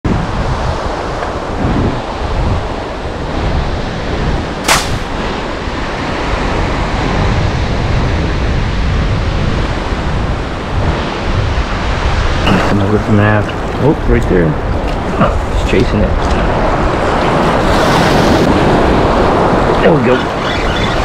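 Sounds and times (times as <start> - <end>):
wind buffeting microphone: 0.0 - 21.0
short sharp crack: 4.6 - 5.2.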